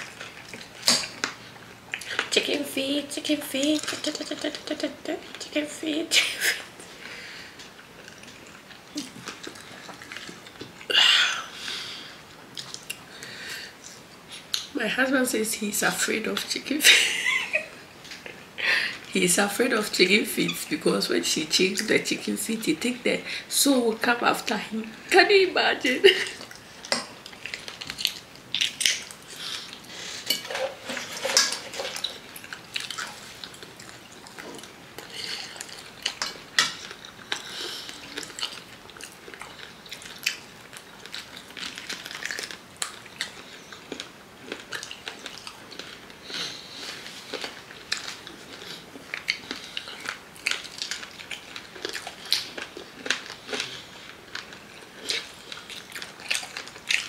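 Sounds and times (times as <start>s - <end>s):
people biting and chewing: 7.5s - 11.0s, 26.4s - 57.0s.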